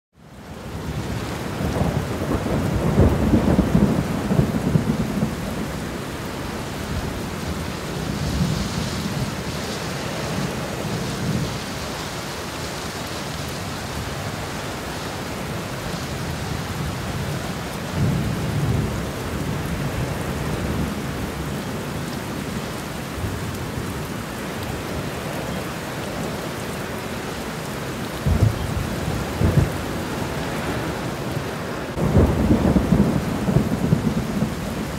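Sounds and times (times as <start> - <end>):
steady rain: 0.2 - 34.9
thunder rumbling: 0.8 - 11.9, 28.1 - 34.9.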